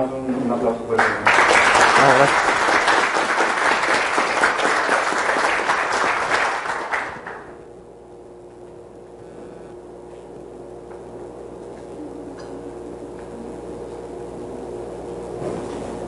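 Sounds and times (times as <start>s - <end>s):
low room hum: 0.0s - 16.0s
audience applauding: 1.0s - 7.6s.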